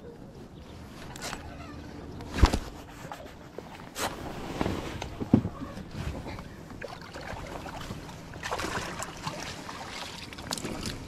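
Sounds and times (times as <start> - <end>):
water splashing and dripping: 6.8 - 11.0.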